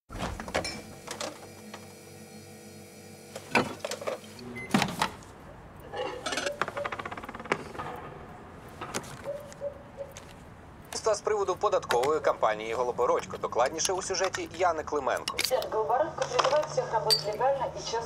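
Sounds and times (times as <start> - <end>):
refrigerator humming: 0.1 - 7.7
mechanical timer ticking: 10.8 - 16.0.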